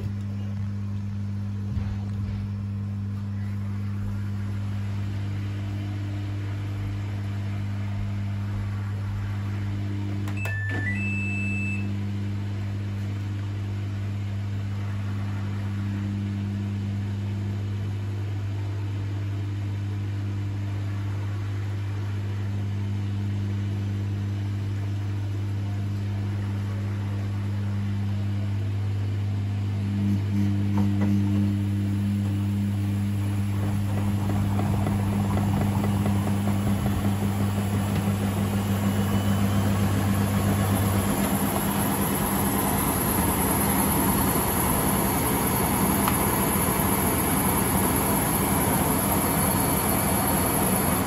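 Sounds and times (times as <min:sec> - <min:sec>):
washing machine humming: 0:00.0 - 0:51.0
click: 0:10.2 - 0:10.6
control panel beeps: 0:10.3 - 0:11.9.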